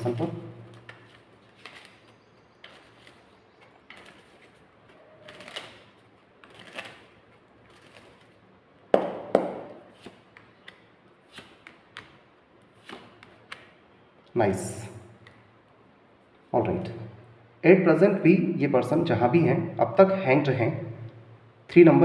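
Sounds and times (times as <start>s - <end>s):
cards being shuffled: 0.0s - 8.4s, 9.8s - 13.8s.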